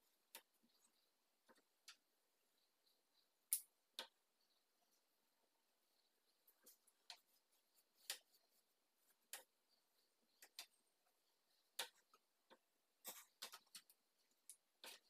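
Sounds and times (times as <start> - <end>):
paint brush clicks and scrapes: 5.9 - 15.0.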